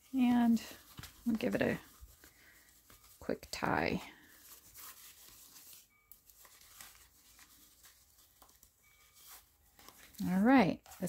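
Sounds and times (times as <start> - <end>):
paper rustling: 0.0 - 11.0
soft brushes and taps: 0.2 - 5.8
fabric tie being knotted: 0.7 - 11.0.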